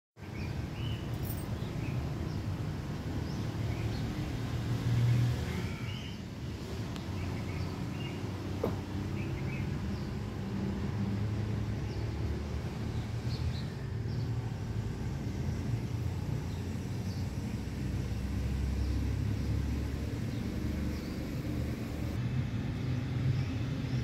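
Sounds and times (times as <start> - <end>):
small birds chirping: 0.2 - 4.4, 6.9 - 10.3, 11.8 - 22.2.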